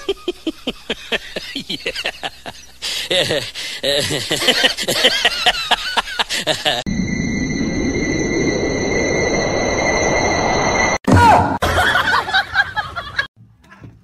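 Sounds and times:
steady hum with high tones: 6.6 - 11.0.

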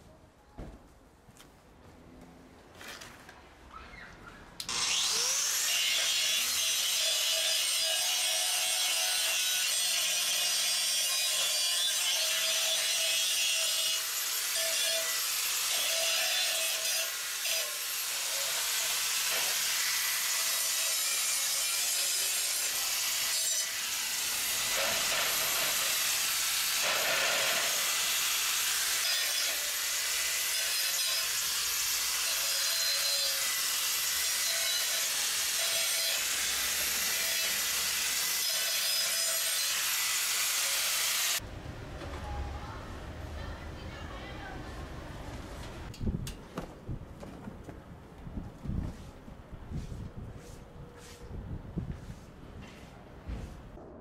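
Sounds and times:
angle grinder grinding steel: 4.7 - 41.4.

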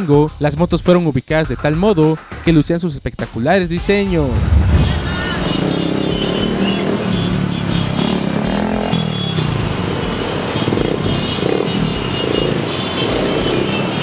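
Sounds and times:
background music: 0.0 - 7.5
motorcycle engines running: 4.1 - 14.0.

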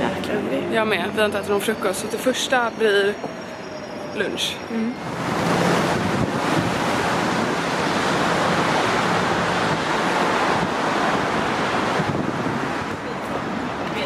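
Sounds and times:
road traffic: 0.0 - 14.0
wind buffeting microphone: 5.0 - 14.0.

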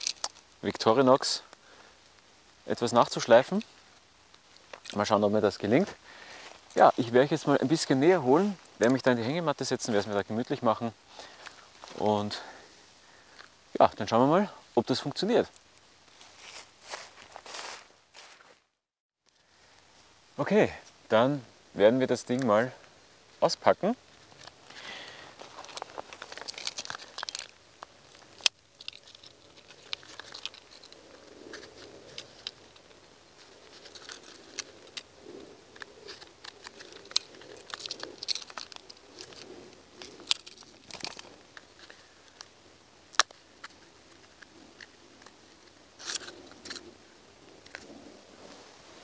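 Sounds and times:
paper packaging tearing and crinkling: 25.4 - 27.5.

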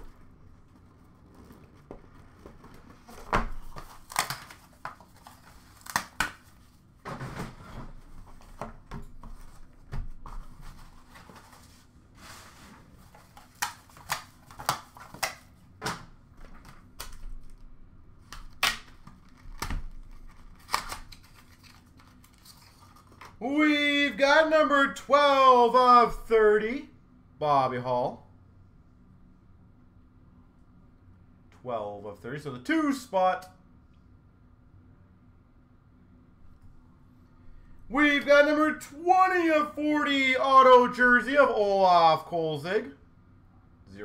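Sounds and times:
packaging rustling and tearing: 0.0 - 6.7, 18.3 - 23.4.

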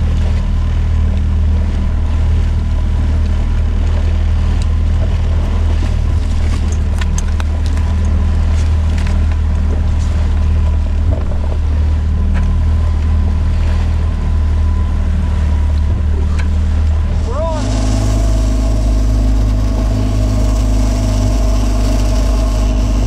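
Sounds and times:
outboard motor running: 0.0 - 23.0.

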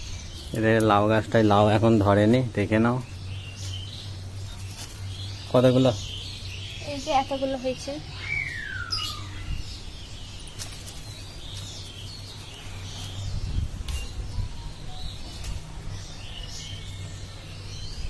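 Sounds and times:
small birds chirping: 0.0 - 18.0
handling clicks and rustles: 10.3 - 16.1.

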